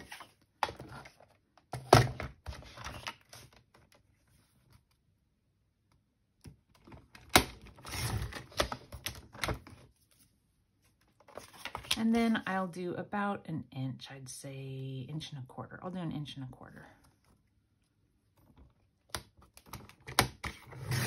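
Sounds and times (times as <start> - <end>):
paper trimmer clacking and scraping: 20.4 - 21.0.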